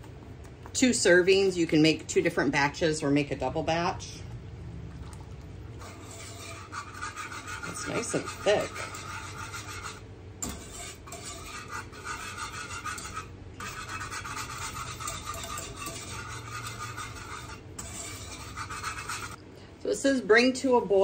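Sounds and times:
utensil stirring thick sauce: 0:05.8 - 0:19.4.

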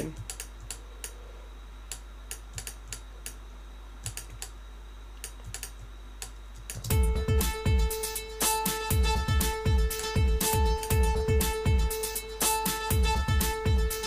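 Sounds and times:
filtered drum loop: 0:00.0 - 0:00.8, 0:06.6 - 0:14.0
low steady hum: 0:00.0 - 0:14.0
computer mouse clicks: 0:00.2 - 0:01.2, 0:01.9 - 0:03.4, 0:04.0 - 0:04.6, 0:05.2 - 0:06.9.

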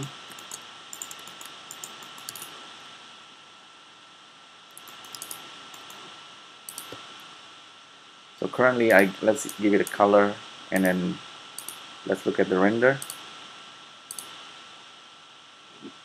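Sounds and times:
keyboard and mouse clicking: 0:00.0 - 0:02.5, 0:04.7 - 0:06.0, 0:06.7 - 0:07.0, 0:08.9 - 0:10.0, 0:11.6 - 0:11.8, 0:13.0 - 0:13.2, 0:14.1 - 0:14.4
faint high whine: 0:00.0 - 0:16.0
steady hiss: 0:00.0 - 0:16.0.

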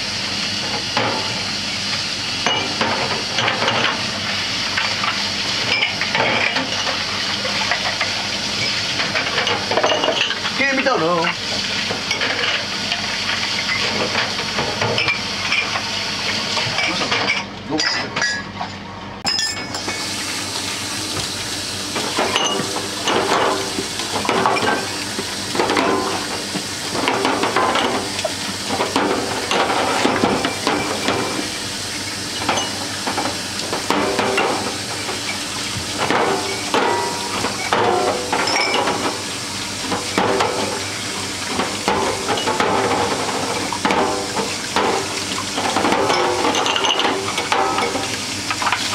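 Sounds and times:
glasses clinking: 0:16.8 - 0:20.0, 0:22.3 - 0:22.7, 0:38.4 - 0:38.9
tap water splashing into sink: 0:21.1 - 0:21.4.

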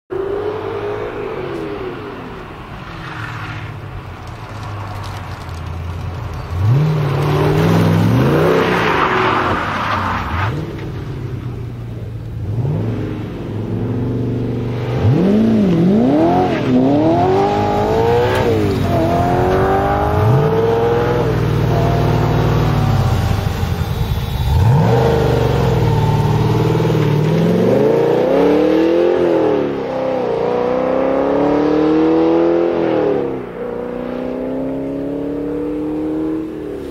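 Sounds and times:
car engine accelerating hard: 0:12.4 - 0:36.9.

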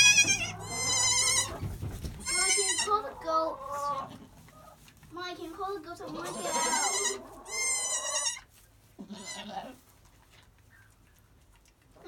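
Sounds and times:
goat kids bleating: 0:00.0 - 0:01.6, 0:02.2 - 0:04.4, 0:05.9 - 0:09.8.

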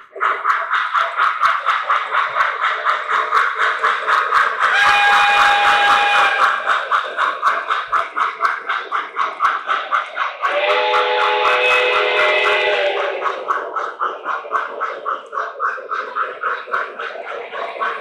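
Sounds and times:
model locomotive chuffing: 0:00.0 - 0:18.0
steam whistle: 0:04.7 - 0:06.6, 0:10.5 - 0:13.2.

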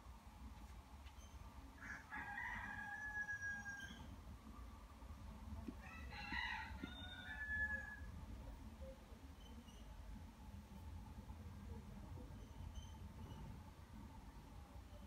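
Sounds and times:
rooster crowing: 0:01.8 - 0:04.1, 0:05.8 - 0:08.1.

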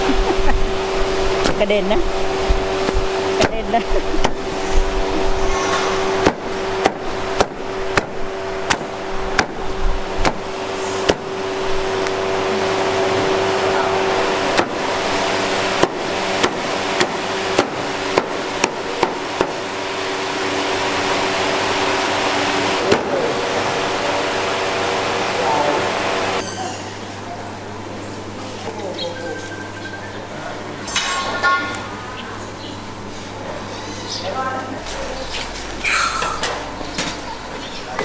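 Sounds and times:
steady hum: 0:00.0 - 0:38.0
cleaver chopping on wooden block: 0:06.2 - 0:09.6, 0:10.2 - 0:10.4.

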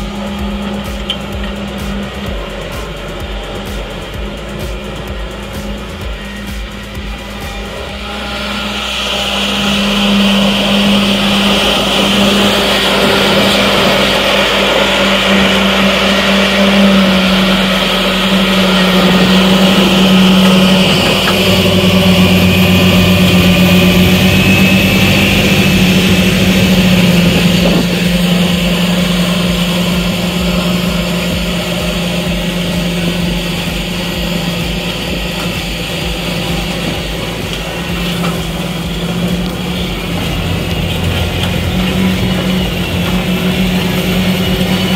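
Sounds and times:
tractor engine drone: 0:00.0 - 0:44.9.

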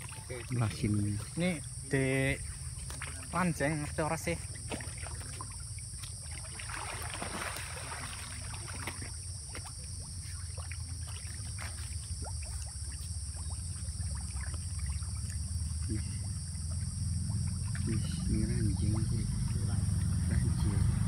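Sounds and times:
fish splashing at water surface: 0:00.0 - 0:21.0
steady low rumble: 0:12.2 - 0:21.0.

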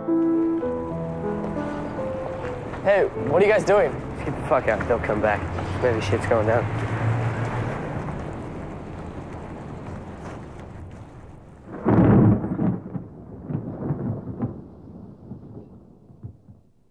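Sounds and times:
thunder rumbling: 0:00.0 - 0:16.9
loud deep thunder clap: 0:07.8 - 0:16.7.

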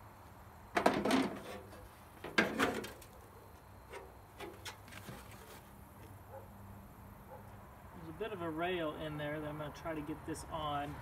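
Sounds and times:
metal tailgate clunking and rattling: 0:00.8 - 0:03.1.

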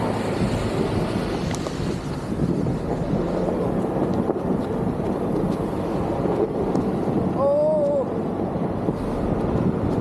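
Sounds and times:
wind buffeting microphone: 0:00.0 - 0:10.0
person calling out: 0:07.4 - 0:08.2.

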